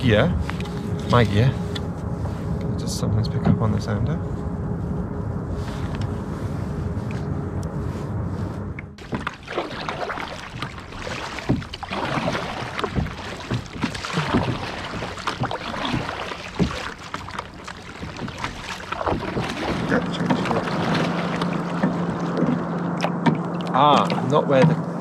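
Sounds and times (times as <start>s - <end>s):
low hum: 0.0s - 25.0s
water splashing against kayak hull: 9.0s - 25.0s
knocks on kayak: 23.2s - 23.5s.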